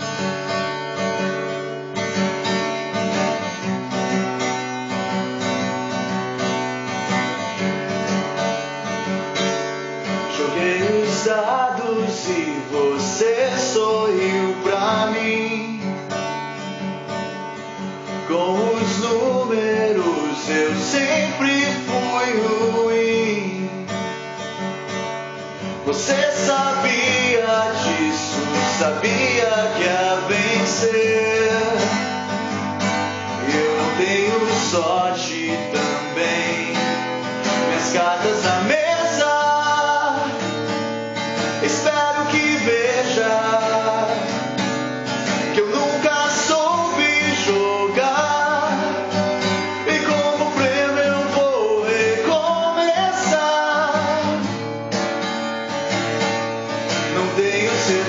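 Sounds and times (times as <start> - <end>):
acoustic guitar strumming: 0.0 - 58.0
man singing: 10.2 - 16.0, 18.2 - 24.0, 25.8 - 32.3, 33.2 - 40.6, 41.5 - 44.6, 45.2 - 54.6, 57.0 - 58.0.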